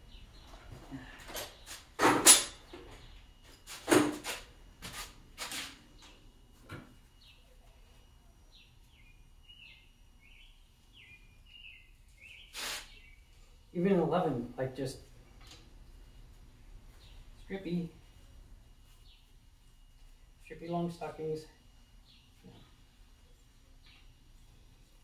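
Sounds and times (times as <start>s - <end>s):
faint bird chirps: 7.1s - 13.7s.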